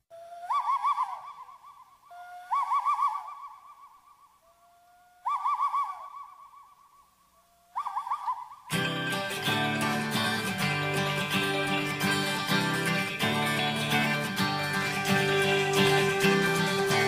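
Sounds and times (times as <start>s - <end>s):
owl-like hooting call: 0.2s - 8.7s, 11.8s - 17.0s.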